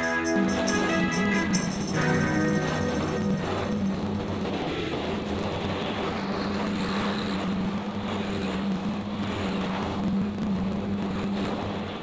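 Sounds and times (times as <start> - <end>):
tractor diesel engine droning: 0.0 - 6.1.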